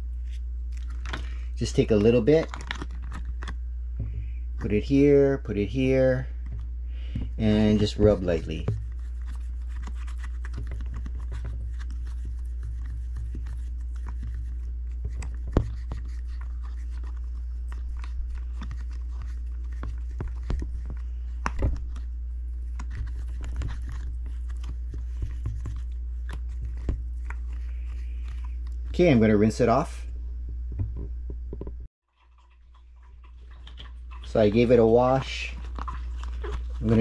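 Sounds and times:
steady low hum: 0:00.0 - 0:37.0
fingertip rubbing a mask lens: 0:07.2 - 0:28.7.

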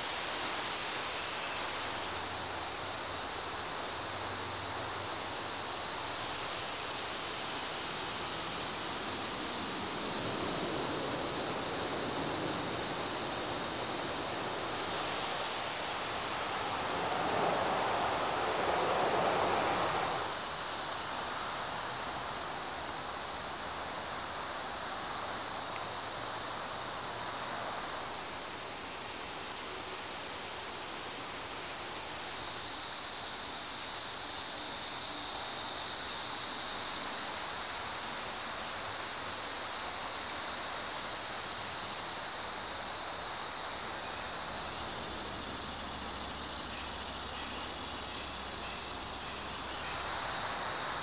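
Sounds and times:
outdoor hiss: 0:00.0 - 0:51.0
rushing noise: 0:06.1 - 0:21.0.

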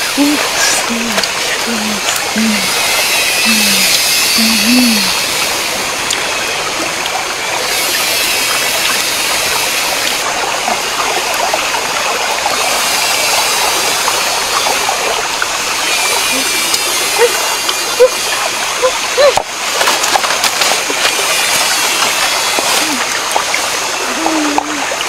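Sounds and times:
stream water rushing: 0:00.0 - 0:25.0.

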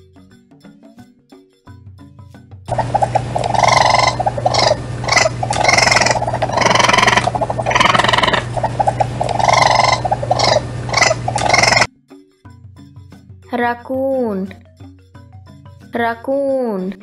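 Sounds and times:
raccoon chittering and whining: 0:02.7 - 0:11.9
steady low hum: 0:02.7 - 0:11.9.

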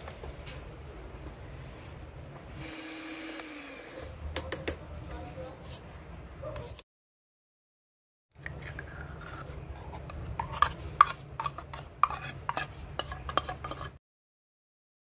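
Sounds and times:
metal spoon scraping and clinking: 0:08.4 - 0:14.0.

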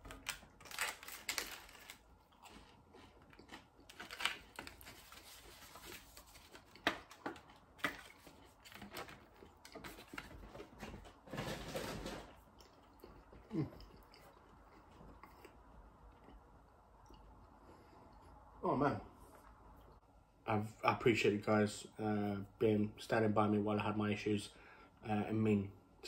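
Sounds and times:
paper sleeve crinkling: 0:00.0 - 0:02.6, 0:03.9 - 0:12.2
chewing crisp food: 0:01.2 - 0:05.4, 0:12.3 - 0:17.4.

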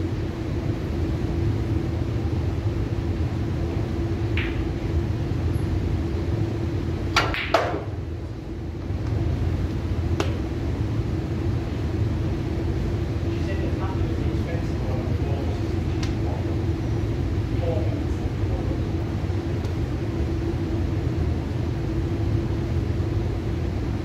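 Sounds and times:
low hum: 0:00.0 - 0:24.0
pool cue striking ball: 0:04.3 - 0:04.8, 0:07.1 - 0:08.0.

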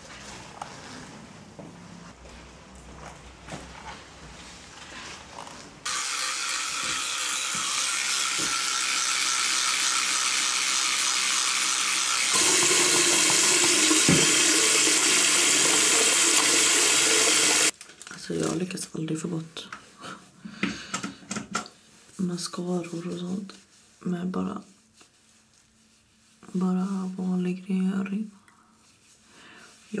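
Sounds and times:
tap running into a sink: 0:12.4 - 0:17.7.

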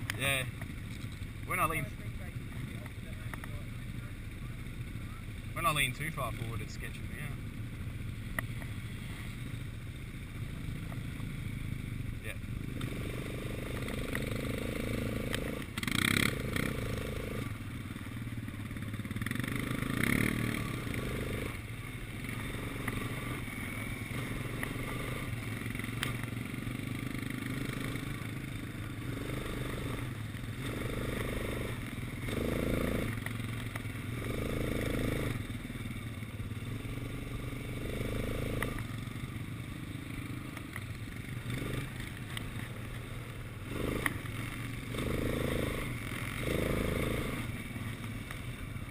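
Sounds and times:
quad bike engine revving: 0:10.4 - 0:48.9.

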